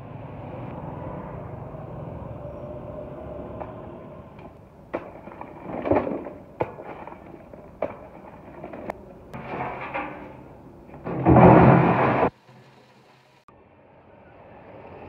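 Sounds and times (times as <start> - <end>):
hard objects knocking and clattering: 4.4 - 12.4.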